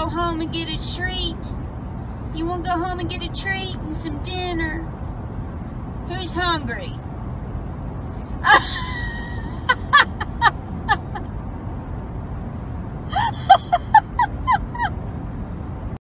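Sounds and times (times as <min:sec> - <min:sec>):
car cabin rumble: 0:06.0 - 0:15.9.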